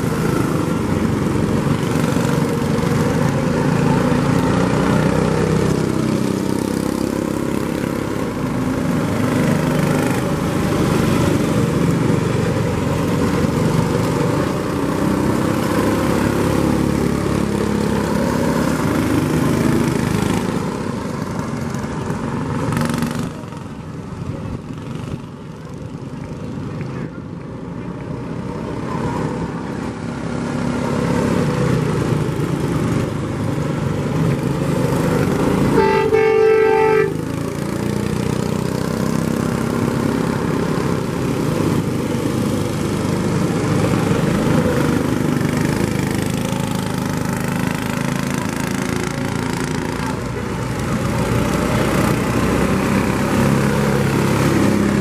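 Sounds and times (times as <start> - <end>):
truck engines passing: 0.0 - 55.0
vehicle horn: 35.7 - 37.3.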